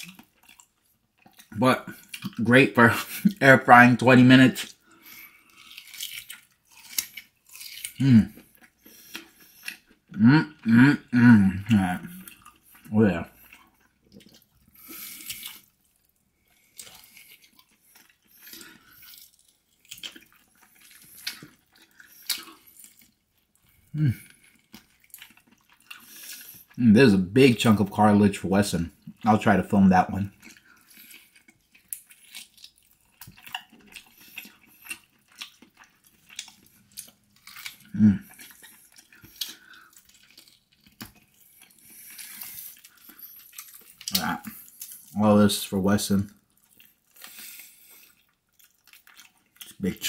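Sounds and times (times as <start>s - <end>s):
man chewing ribs: 0.0s - 50.0s
low voice: 8.0s - 8.3s, 10.2s - 12.1s.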